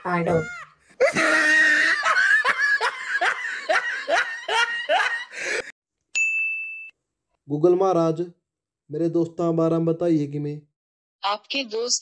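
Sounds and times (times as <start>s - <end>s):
person laughing: 0.3s - 5.7s.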